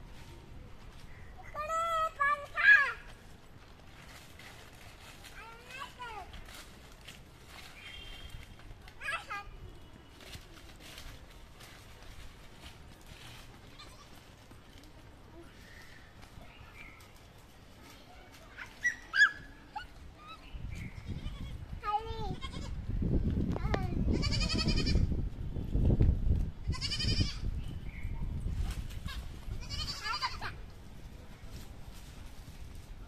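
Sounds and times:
goat bleating: 0:24.2 - 0:25.0, 0:26.7 - 0:27.4, 0:29.1 - 0:30.5.

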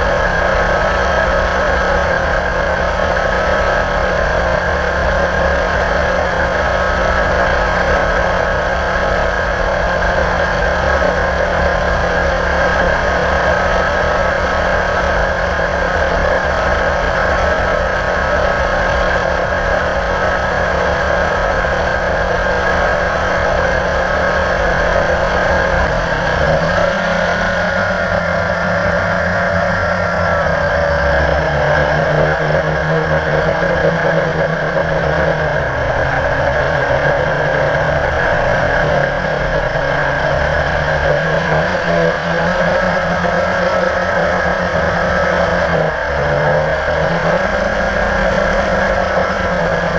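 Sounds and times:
quadcopter motors buzzing: 0:00.0 - 0:49.9.

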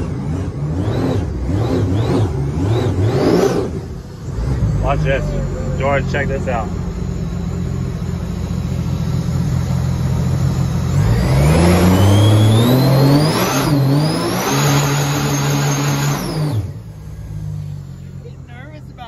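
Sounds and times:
jet boat engine revving: 0:00.0 - 0:19.0.

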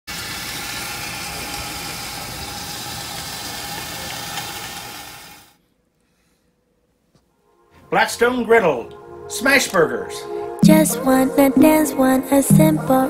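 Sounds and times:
burgers sizzling on a griddle: 0:00.1 - 0:05.5.

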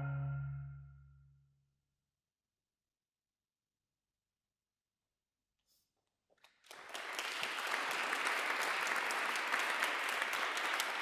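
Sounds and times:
audience applause: 0:06.4 - 0:11.0.

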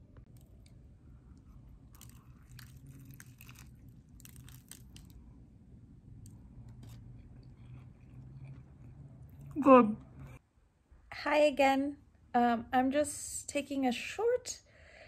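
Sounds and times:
faint low hum: 0:00.0 - 0:13.1
person chewing crunchy sandwich: 0:00.3 - 0:05.3, 0:06.3 - 0:10.4.

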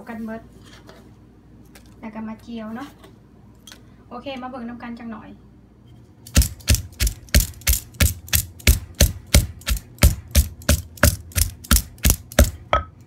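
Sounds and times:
pestle pounding in a mortar: 0:06.3 - 0:13.0.

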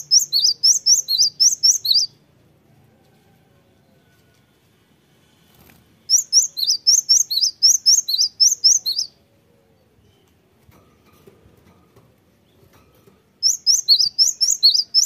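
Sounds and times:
bird whistling paired notes: 0:00.0 - 0:02.1, 0:06.1 - 0:09.2, 0:13.4 - 0:15.0.

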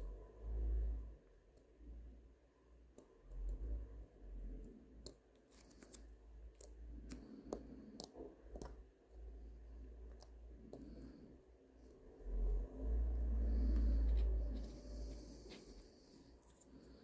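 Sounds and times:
low rumble of handling: 0:11.8 - 0:17.0.

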